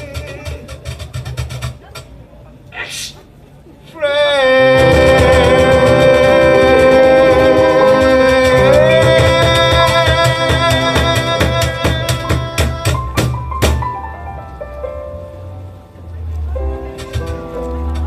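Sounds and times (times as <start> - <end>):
piano: 4.1 - 18.0
cajon hits: 4.8 - 14.0.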